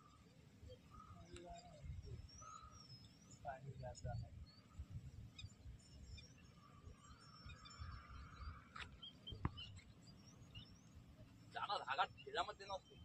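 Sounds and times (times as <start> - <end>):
faint bird chirps: 0.0 - 13.0.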